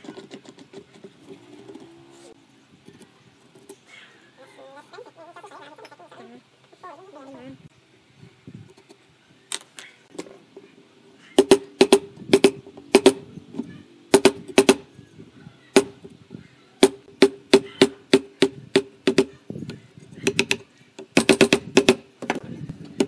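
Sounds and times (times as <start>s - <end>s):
wood chisel striking wood: 20.2s - 22.4s.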